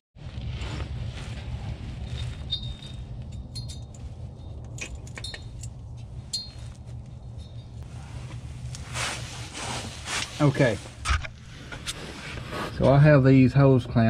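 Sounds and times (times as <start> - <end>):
steady low rumble: 0.2 - 14.0
metal clamps clinking: 2.1 - 7.8.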